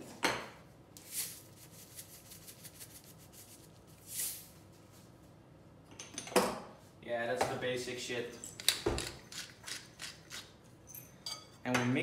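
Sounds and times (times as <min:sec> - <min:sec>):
salt sprinkling hiss: 0:01.0 - 0:04.6.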